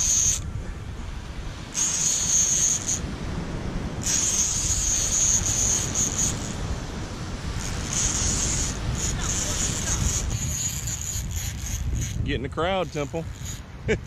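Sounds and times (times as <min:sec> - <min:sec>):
fishing reel buzzing: 0:00.0 - 0:00.4, 0:01.7 - 0:03.0, 0:04.0 - 0:06.7, 0:07.6 - 0:13.7
surf rumble: 0:00.0 - 0:14.0
wind: 0:00.0 - 0:14.0.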